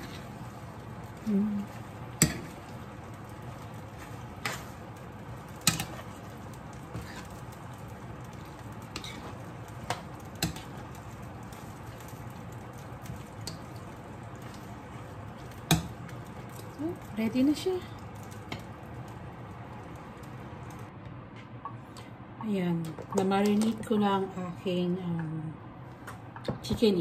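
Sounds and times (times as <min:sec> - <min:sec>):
spoon tapping a frying pan: 0:02.2 - 0:02.6, 0:15.6 - 0:16.0.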